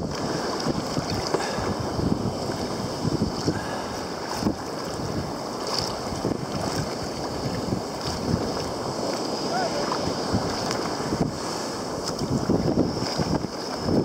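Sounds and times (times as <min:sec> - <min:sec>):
paddle splashes: 0:00.0 - 0:14.0
rushing splashing water: 0:00.0 - 0:14.0
wind buffeting microphone: 0:00.0 - 0:14.0.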